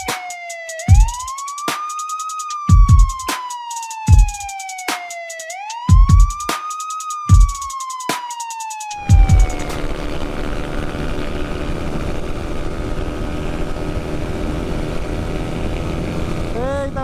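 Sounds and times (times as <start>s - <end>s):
road noise: 8.9s - 17.0s
motorcycle engine cruising: 9.0s - 17.0s.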